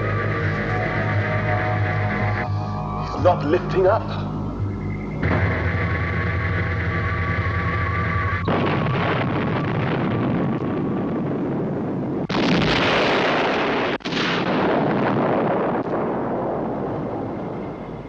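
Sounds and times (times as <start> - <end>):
droning spacecraft hum: 0.0 - 12.3, 15.9 - 18.0
rumble: 0.0 - 18.0
loud explosion: 5.2 - 17.8.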